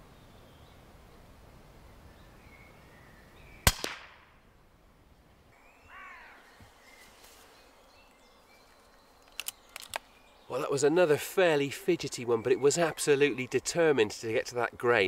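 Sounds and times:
air rifle shot: 0:03.6 - 0:04.3
crow cawing: 0:05.9 - 0:06.5.

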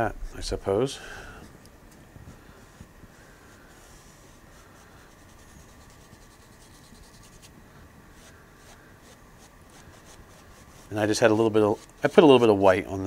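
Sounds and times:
brush rasping on canvas: 0:02.3 - 0:12.6.

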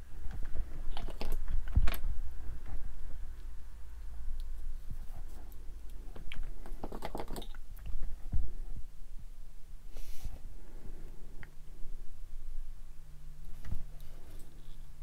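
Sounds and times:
low hum: 0:00.0 - 0:06.7, 0:07.5 - 0:15.0
short hiss: 0:09.9 - 0:10.4.

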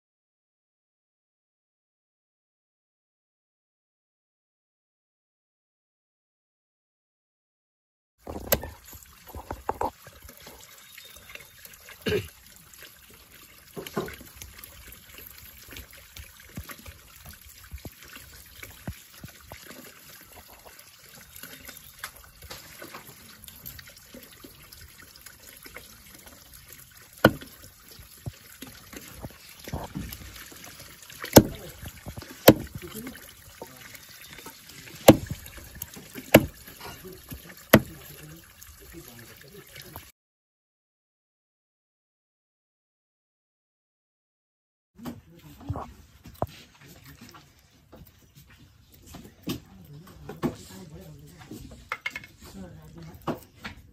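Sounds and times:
water running into a pot: 0:08.2 - 0:40.1
knife chopping on wooden block: 0:27.3 - 0:27.5, 0:31.4 - 0:31.6, 0:32.5 - 0:32.8, 0:35.1 - 0:35.4, 0:36.3 - 0:36.6.

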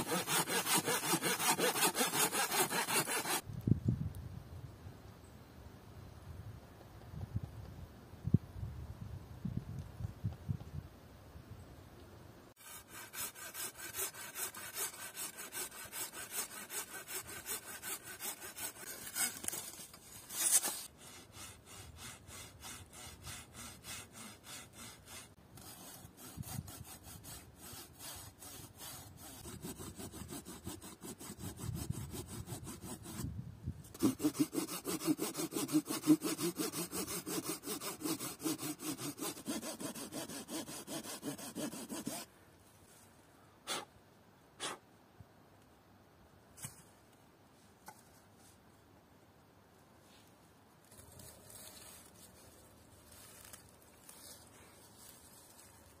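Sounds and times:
hand saw rasping through branch: 0:00.0 - 0:03.4, 0:12.6 - 0:33.3, 0:33.9 - 0:42.3.

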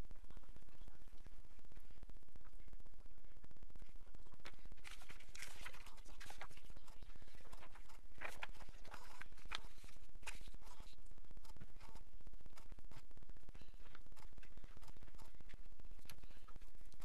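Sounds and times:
steady low hum: 0:00.0 - 0:17.0
paper rustling and sliding: 0:04.4 - 0:11.0.

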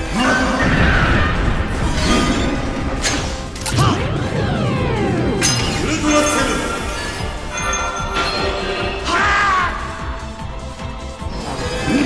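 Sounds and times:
dramatic background music: 0:00.0 - 0:12.0
falling wavering tones: 0:03.7 - 0:09.4.

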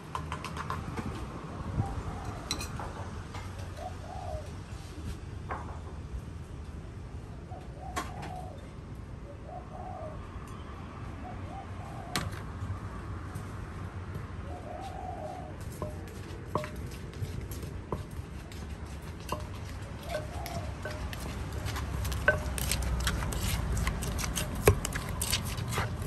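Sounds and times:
dove cooing: 0:01.8 - 0:02.5, 0:03.6 - 0:04.7, 0:07.5 - 0:08.7, 0:09.3 - 0:10.3, 0:11.2 - 0:12.3, 0:14.4 - 0:16.1, 0:19.3 - 0:23.3
wooden pestle knocking in mortar: 0:15.8 - 0:16.9, 0:19.2 - 0:26.0.

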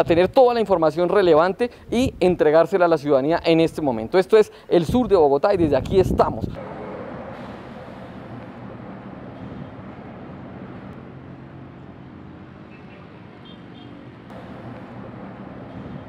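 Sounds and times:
low engine hum: 0:06.5 - 0:16.0
busy street traffic: 0:06.6 - 0:16.0.

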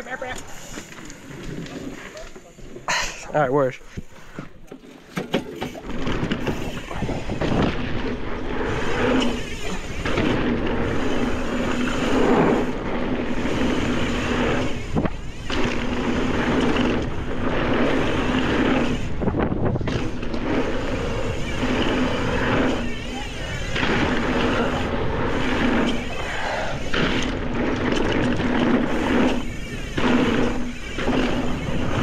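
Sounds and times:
bike tyre noise on dirt: 0:00.0 - 0:32.0
wind rushing across microphone: 0:05.8 - 0:32.0.

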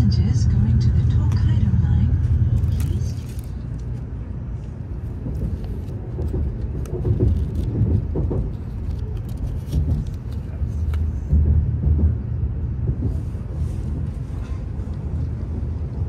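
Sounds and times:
train rumble inside cabin: 0:00.0 - 0:16.0
leaf wrapping crinkling: 0:02.5 - 0:04.1, 0:05.6 - 0:10.6.

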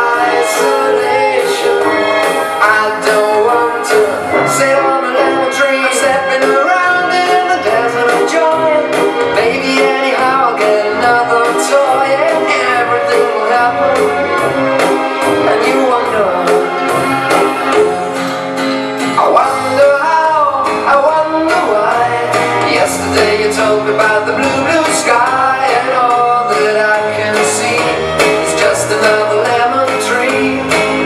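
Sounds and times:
person singing over guitar: 0:00.0 - 0:14.6, 0:15.2 - 0:17.0, 0:19.1 - 0:31.0.

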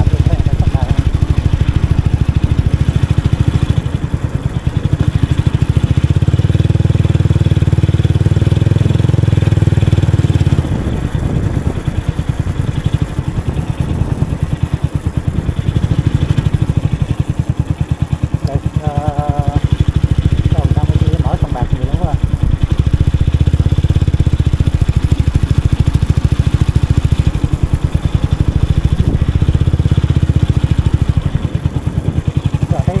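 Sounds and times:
motorcycle engine rumbling: 0:00.0 - 0:33.0.

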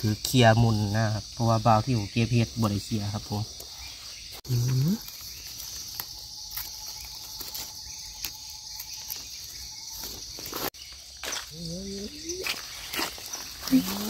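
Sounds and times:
insect chorus drone: 0:00.0 - 0:14.0
rustling of dry leaves and twigs: 0:03.5 - 0:14.0.

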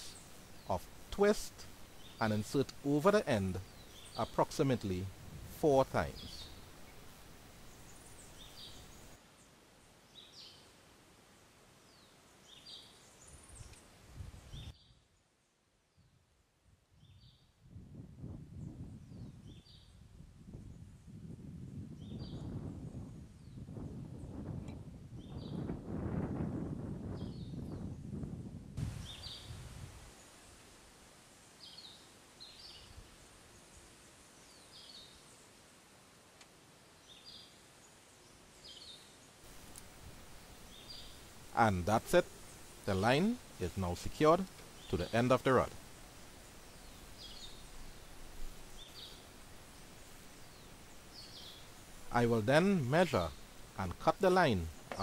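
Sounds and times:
birds chirping: 0:00.0 - 0:09.2, 0:37.0 - 0:55.0.

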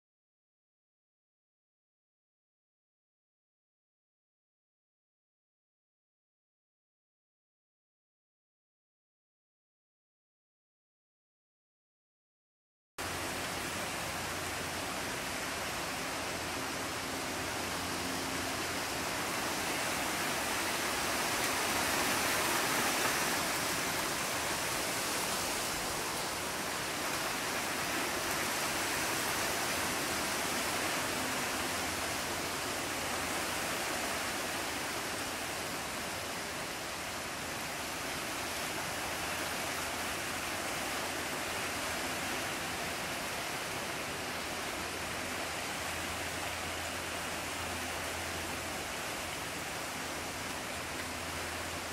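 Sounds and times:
steady outdoor hiss: 0:13.0 - 0:51.9.

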